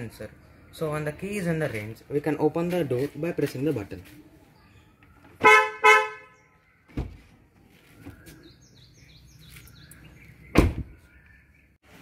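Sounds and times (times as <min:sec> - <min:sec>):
thump: 0:06.9 - 0:07.2, 0:10.5 - 0:11.0.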